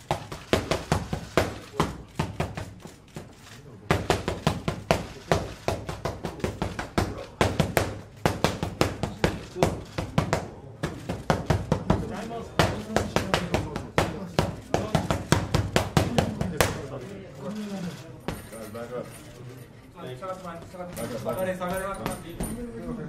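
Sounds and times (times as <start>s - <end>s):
boxing gloves hitting mitts: 0.0s - 17.0s.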